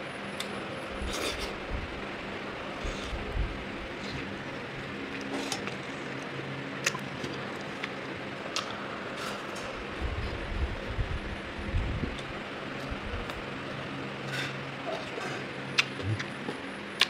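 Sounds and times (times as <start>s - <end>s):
background hiss and hum: 0.0s - 17.0s
person chewing: 15.8s - 16.6s.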